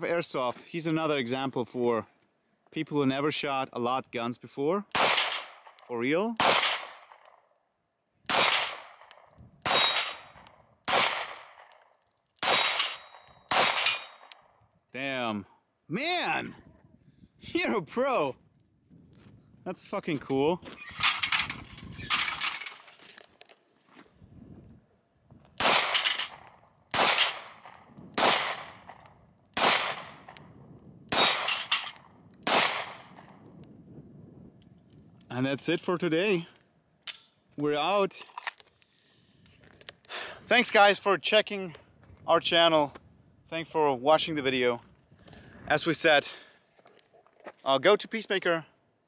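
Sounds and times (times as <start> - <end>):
pistol shots echoing: 4.9 - 7.4, 8.3 - 11.8, 12.4 - 14.4, 25.6 - 30.4, 31.1 - 33.3.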